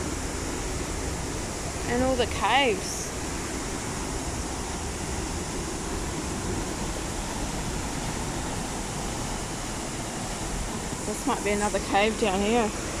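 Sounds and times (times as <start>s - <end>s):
river rapids rushing: 0.0s - 13.0s.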